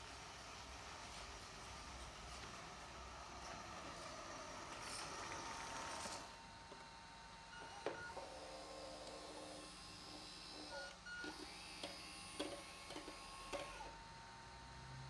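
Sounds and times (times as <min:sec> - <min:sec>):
small electric motor whirring: 0:08.1 - 0:14.0.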